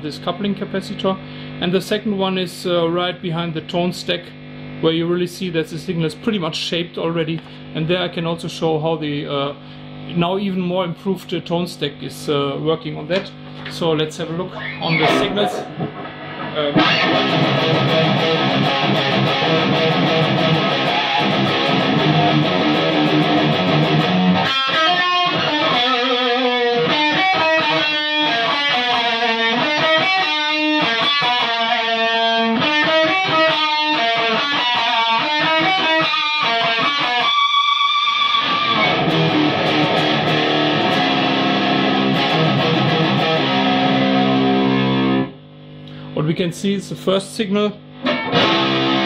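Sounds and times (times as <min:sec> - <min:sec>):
distorted electric guitar: 0:04.3 - 0:04.9, 0:13.1 - 0:46.2, 0:47.8 - 0:49.0.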